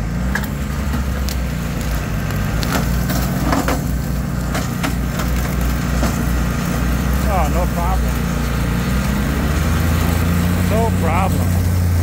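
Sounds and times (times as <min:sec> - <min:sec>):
mower running through brush: 0:00.0 - 0:12.0
sticks snapping and cracking: 0:00.3 - 0:03.8.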